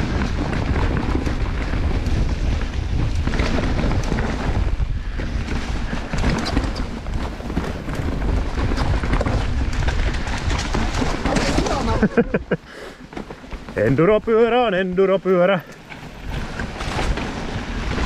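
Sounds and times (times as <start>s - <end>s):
wind on microphone: 0.0s - 12.6s
mountain bike rattling and clicking: 0.0s - 18.0s.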